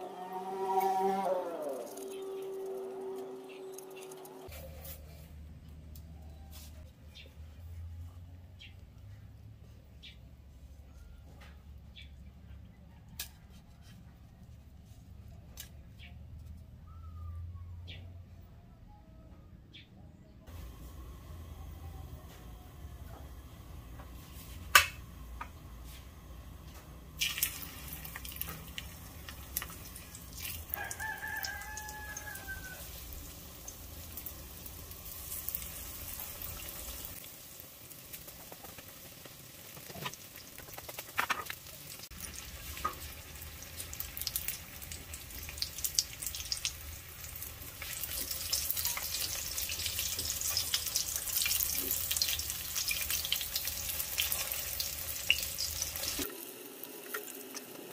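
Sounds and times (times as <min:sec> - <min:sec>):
rooster crowing: 0:00.0 - 0:04.4, 0:30.6 - 0:33.2
fish frying in hot oil: 0:27.1 - 0:57.9.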